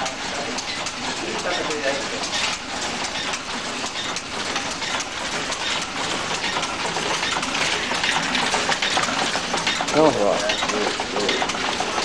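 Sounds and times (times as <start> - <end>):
loom clattering: 0.0 - 12.0.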